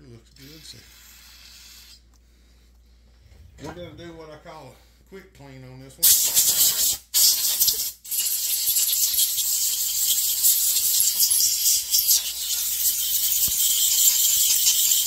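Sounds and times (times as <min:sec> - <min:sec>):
aerosol spray hissing: 0:00.4 - 0:02.1, 0:06.0 - 0:15.0.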